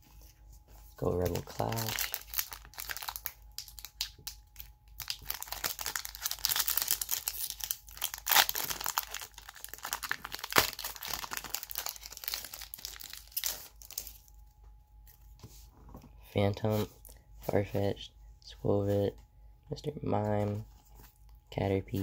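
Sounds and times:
foil wrapper crinkling and tearing: 1.1s - 14.3s.

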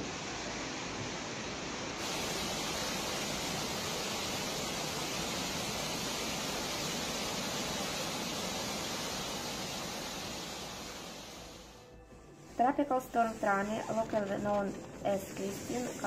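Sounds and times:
floodwater rushing: 0.0s - 11.6s.

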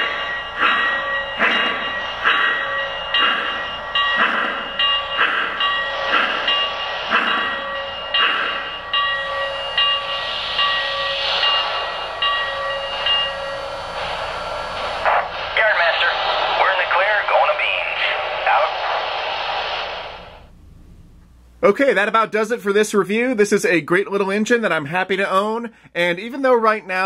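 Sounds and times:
hiss: 0.0s - 20.5s
model locomotive steam chuffs: 0.0s - 20.5s
steady tone: 0.0s - 21.8s.

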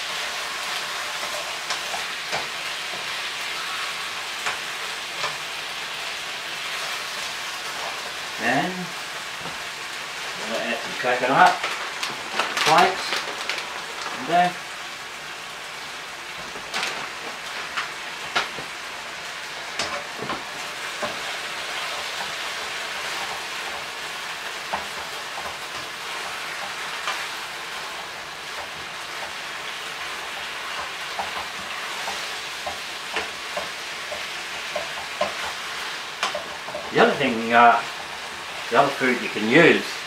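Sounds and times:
stir-fry sizzling in a frying pan: 0.0s - 40.0s
utensil clicking against pan: 30.3s - 36.9s.

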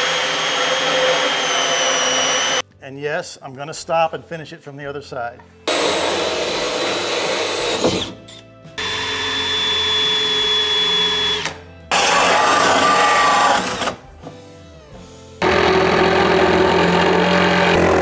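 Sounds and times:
cordless drill motor whine: 0.0s - 2.6s, 8.8s - 11.5s.

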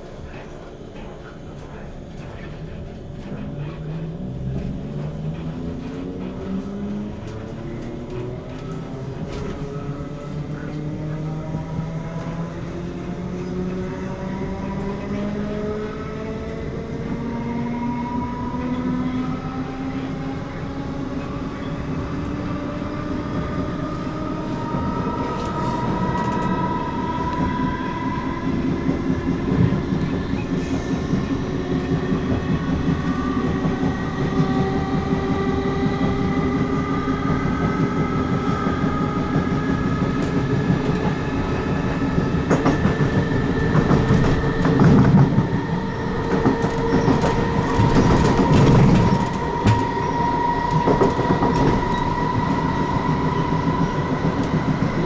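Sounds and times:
clickety-clack of rail joints: 0.0s - 19.1s, 19.7s - 55.0s
wheel and rail rumble: 0.0s - 55.0s.

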